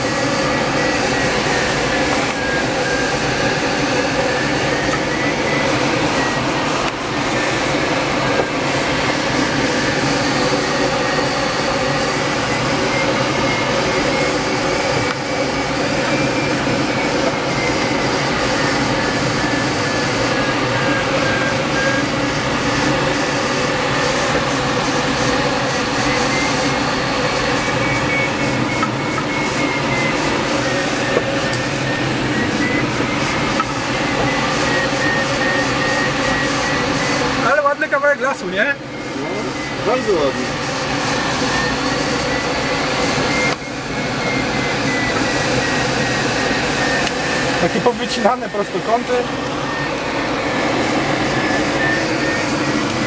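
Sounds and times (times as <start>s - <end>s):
aircraft cockpit drone: 0.0s - 53.0s
thin high wavering tone: 38.7s - 47.0s.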